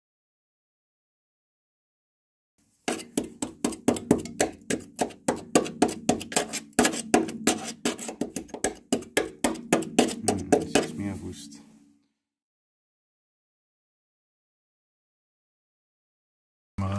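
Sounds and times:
screwdriver tapping sheet metal: 2.9 - 11.0.

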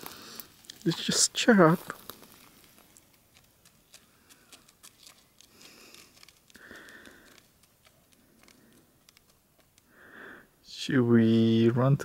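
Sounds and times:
soft hiss: 0.0 - 11.5
faint clicks: 2.0 - 9.9.

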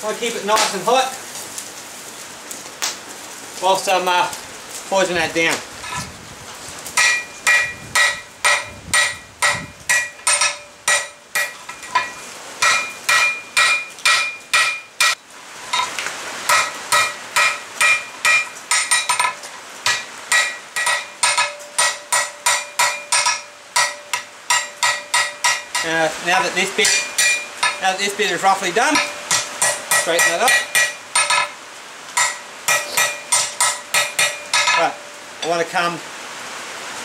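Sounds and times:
hammer striking steel on anvil: 7.0 - 15.9, 16.5 - 28.3, 28.9 - 31.6, 32.2 - 35.6.

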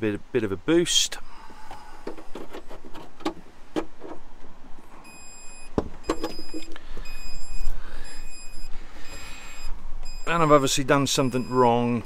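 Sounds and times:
high electronic beeps: 5.1 - 8.7, 9.5 - 12.0.

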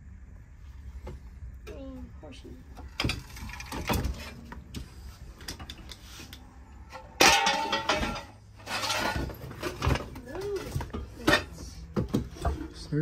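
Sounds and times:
loud metallic clatter: 6.9 - 10.0
metal dishes knocking and scraping: 6.9 - 12.8.

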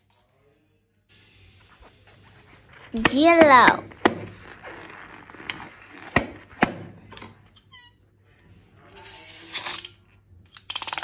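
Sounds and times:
balloon rubbing rustle: 2.2 - 6.6
balloon squeaking: 2.9 - 6.6.

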